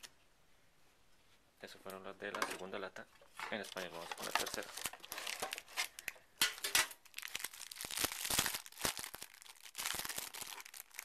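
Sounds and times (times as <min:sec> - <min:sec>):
plastic wrapper crinkling: 0:03.5 - 0:11.0.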